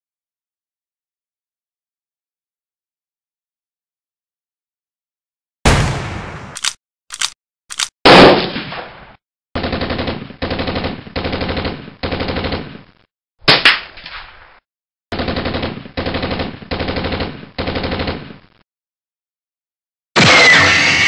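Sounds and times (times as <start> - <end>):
loud blast with long tail: 5.7 - 6.6.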